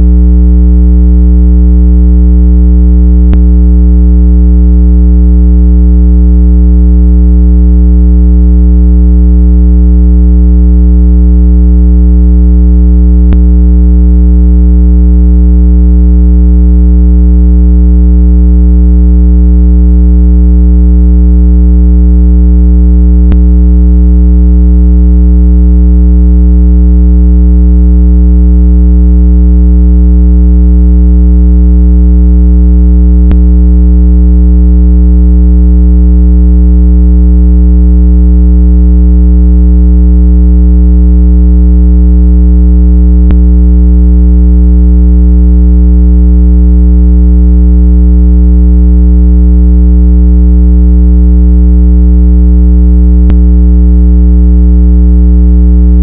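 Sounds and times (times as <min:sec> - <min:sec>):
low-pitched electronic tone: 0:03.3 - 0:03.5.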